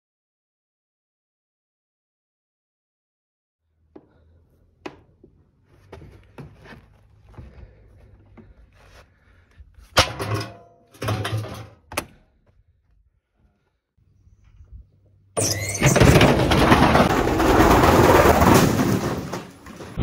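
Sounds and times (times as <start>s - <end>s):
knocks and clatters: 15.5s - 20.0s.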